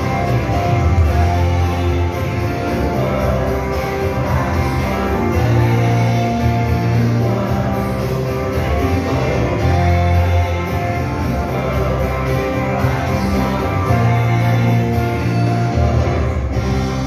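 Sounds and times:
loud dance music: 0:00.0 - 0:17.0.

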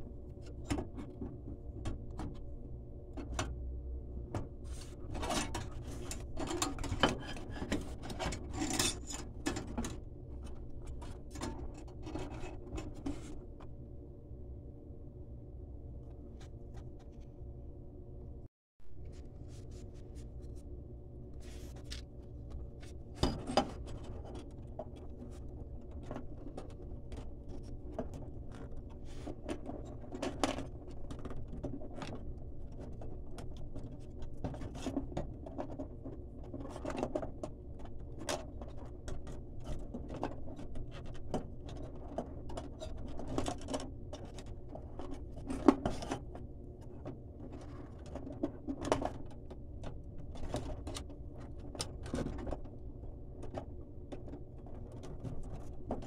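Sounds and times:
steady low hum: 0:00.0 - 0:56.0
clicks and scrapes in metal fixture: 0:05.1 - 0:10.0.

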